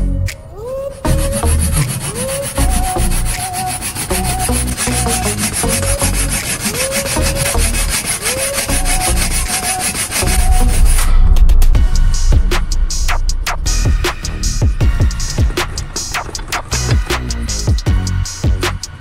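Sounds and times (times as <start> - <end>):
hand saw cutting wood: 1.0 - 11.1, 15.1 - 19.0.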